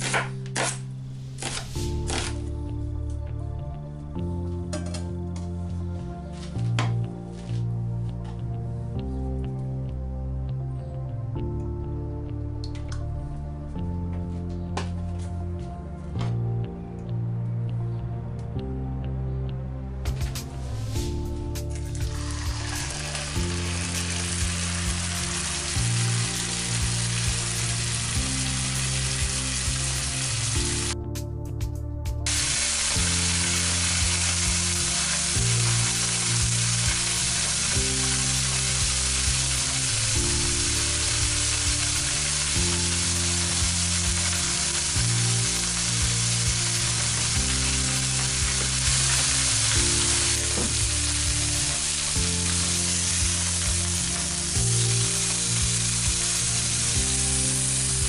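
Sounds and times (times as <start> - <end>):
background music: 0.0 - 58.0
meat sizzling in a frying pan: 22.0 - 31.0, 32.3 - 58.0.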